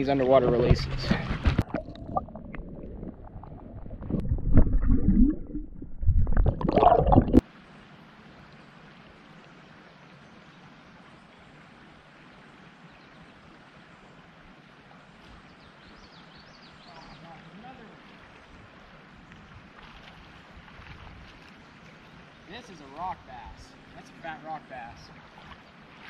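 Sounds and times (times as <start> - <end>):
underwater gurgling and sloshing: 0.2 - 7.4
surges of water: 1.6 - 26.0
faint steady hiss: 21.3 - 26.0.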